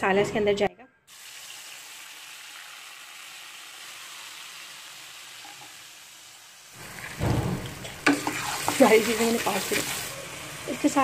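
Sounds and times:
hot oil sizzling in wok: 1.1s - 11.0s
low thump: 7.2s - 7.8s.

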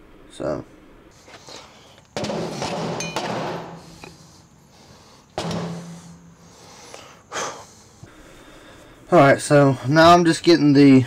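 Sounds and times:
metal parts clanking and scraping: 2.4s - 4.2s.

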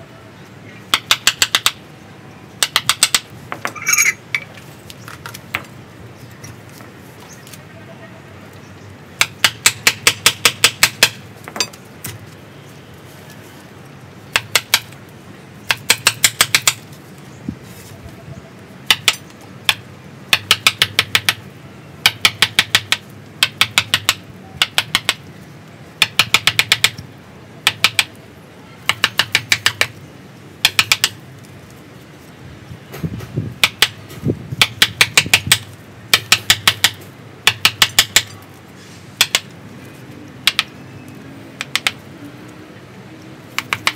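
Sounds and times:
chisel tapped with hammer: 0.9s - 1.8s, 2.6s - 4.1s, 9.2s - 11.8s, 14.3s - 14.9s, 15.6s - 16.8s, 18.9s - 21.4s, 22.0s - 25.2s, 26.0s - 27.0s, 27.6s - 28.2s, 28.8s - 30.0s, 30.6s - 31.2s, 33.6s - 34.0s, 34.6s - 38.4s, 39.2s - 39.5s, 40.4s - 40.7s, 41.6s - 42.0s, 43.5s - 43.9s.

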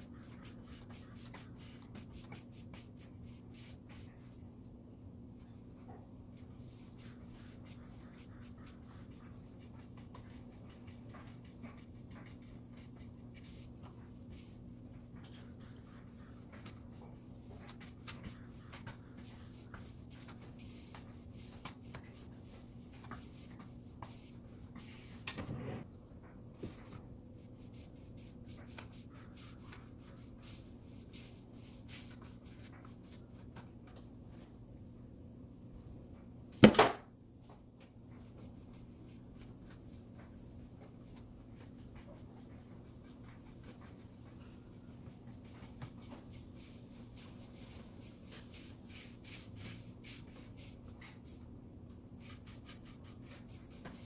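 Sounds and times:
paintbrush rubbing on wood: 0.0s - 4.4s, 6.4s - 25.8s, 27.4s - 33.5s, 45.8s - 51.4s, 52.1s - 54.0s.

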